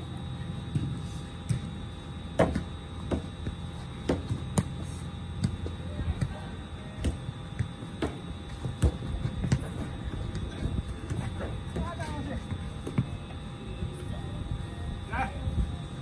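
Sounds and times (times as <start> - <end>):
football thumps: 0.7 - 13.3.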